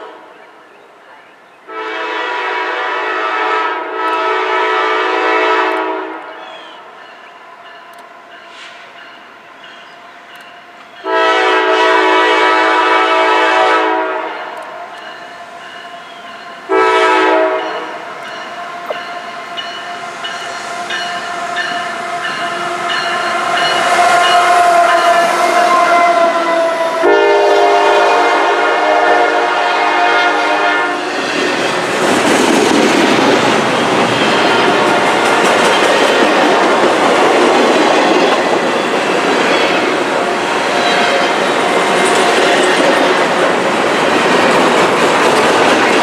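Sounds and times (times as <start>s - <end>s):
locomotive air horn blasts: 1.7s - 6.3s, 11.0s - 14.6s, 16.7s - 18.1s, 21.9s - 31.2s, 34.4s - 35.4s
locomotive engine and wheels: 5.7s - 11.2s, 14.2s - 16.8s, 17.4s - 27.1s, 31.0s - 46.0s.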